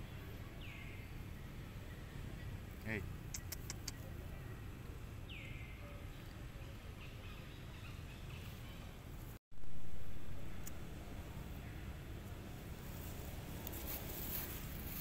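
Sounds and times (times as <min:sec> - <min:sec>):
sharp clicks: 0:03.3 - 0:04.0
steady low rumble: 0:09.5 - 0:15.0.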